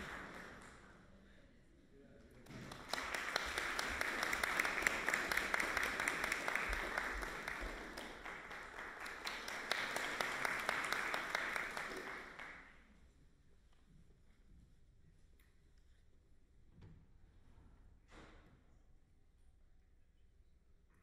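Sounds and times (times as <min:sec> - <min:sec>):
audience applauding: 0:00.0 - 0:00.8, 0:02.5 - 0:12.8.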